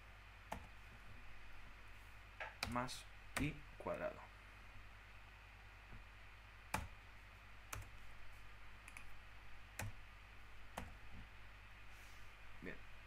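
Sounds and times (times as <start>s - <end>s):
faint low hum: 0.0s - 13.0s.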